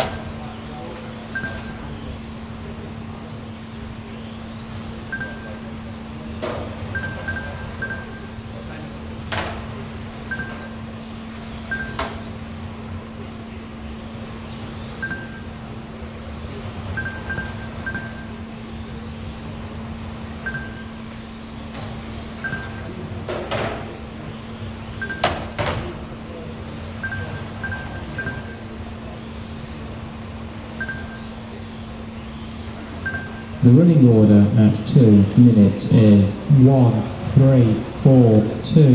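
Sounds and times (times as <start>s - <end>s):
steady low hum: 0.0s - 38.9s
lap timer beeps: 1.3s - 1.9s, 5.1s - 5.7s, 6.9s - 8.4s, 10.3s - 10.8s, 11.7s - 12.2s, 15.0s - 15.6s, 17.0s - 18.4s, 20.4s - 21.0s, 22.4s - 23.1s, 25.0s - 25.4s, 27.0s - 28.7s, 30.8s - 31.4s, 33.0s - 33.7s.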